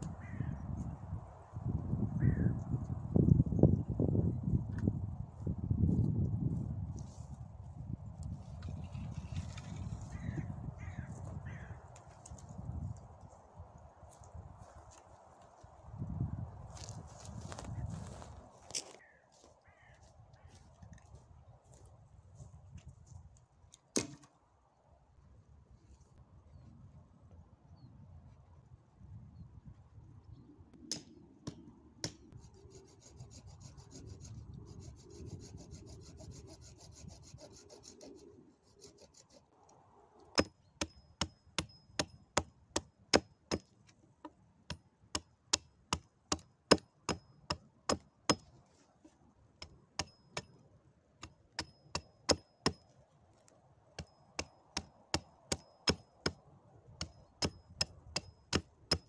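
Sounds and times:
hatchet chopping dry branch: 0:23.9 - 0:24.3, 0:30.9 - 0:32.4, 0:40.3 - 0:48.5, 0:49.6 - 0:50.6, 0:51.2 - 0:52.9, 0:54.0 - 0:56.4, 0:57.0 - 0:59.0.

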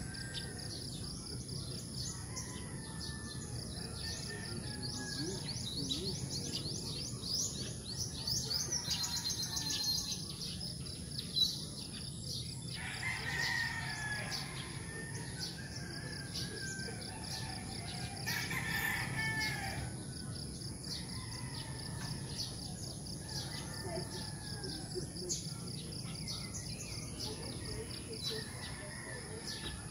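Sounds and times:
rooster crowing: 0:12.7 - 0:19.9.

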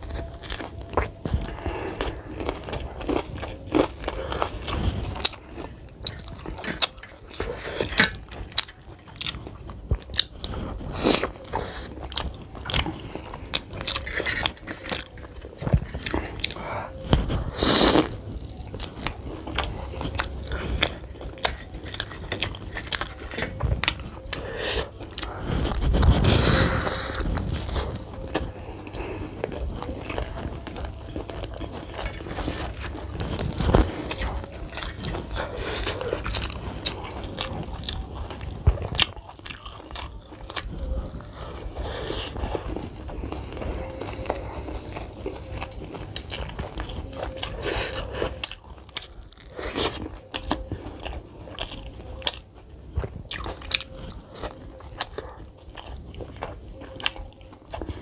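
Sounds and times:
person crunching snack food: 0:00.0 - 0:58.0.

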